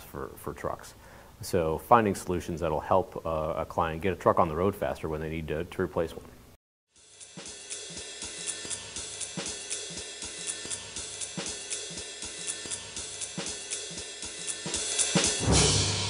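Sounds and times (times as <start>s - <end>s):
hi-hat and cymbal ticking: 7.0s - 16.0s
drum-kit beat: 7.1s - 16.0s.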